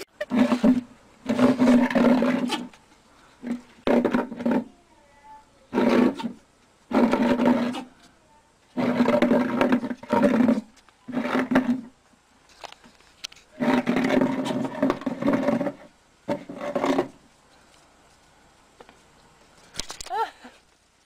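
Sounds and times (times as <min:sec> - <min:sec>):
flowerpot scraping over concrete: 0:00.0 - 0:04.9, 0:05.6 - 0:08.1, 0:08.7 - 0:17.4.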